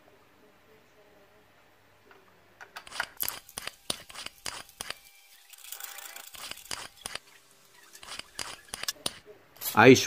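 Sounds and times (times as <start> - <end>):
screwdriver clicking and scraping metal: 2.8 - 9.2.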